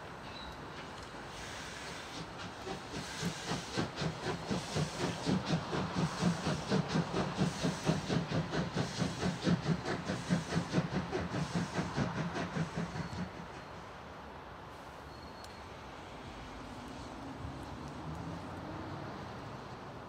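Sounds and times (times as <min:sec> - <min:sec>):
steam hissing: 0:00.0 - 0:14.0
steam locomotive exhaust beats: 0:00.0 - 0:14.1.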